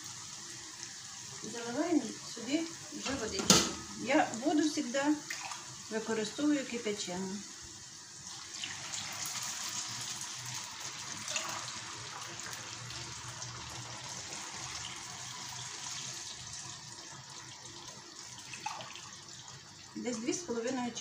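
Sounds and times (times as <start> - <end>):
water pouring and splashing: 5.2 - 5.8, 8.2 - 19.7.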